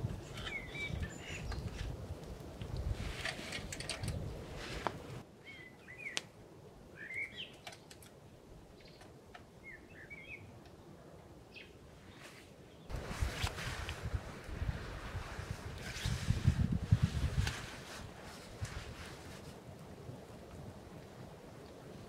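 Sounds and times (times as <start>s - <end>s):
forest ambience: 0.0s - 16.2s
rustling and clicking: 0.1s - 5.2s, 7.5s - 8.2s
small bird chirping: 0.2s - 1.8s, 7.0s - 7.9s, 8.8s - 10.5s.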